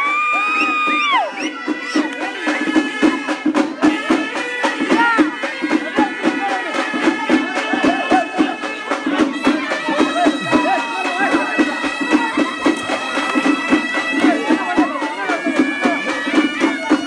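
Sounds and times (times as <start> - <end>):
drums beaten in quick rhythm: 0.0 - 17.0
wind instrument holding high notes: 0.0 - 17.0
voices shouting: 3.8 - 17.0.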